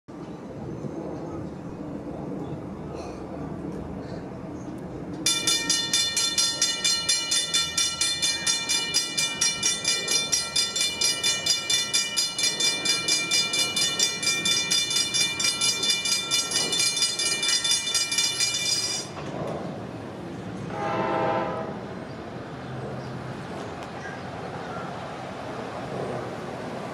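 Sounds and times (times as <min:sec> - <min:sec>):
railroad crossing bells ringing: 0:05.2 - 0:19.4
train horn: 0:20.7 - 0:22.0.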